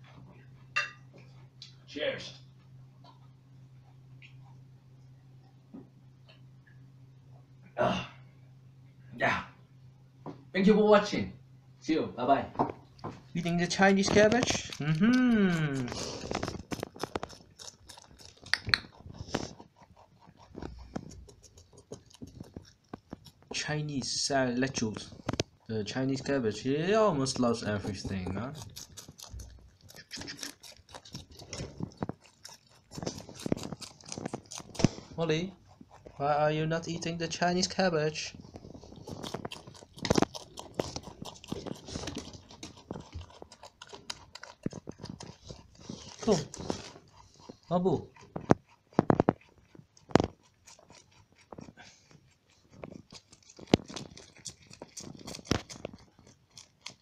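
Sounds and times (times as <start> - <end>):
rabbit chewing cabbage: 12.9 - 57.0.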